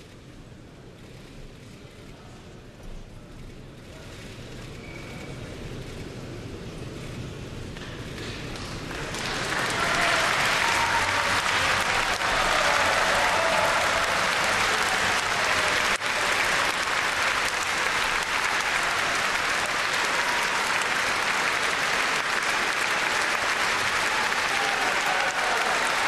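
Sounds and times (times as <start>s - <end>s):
audience applause: 8.2s - 26.0s.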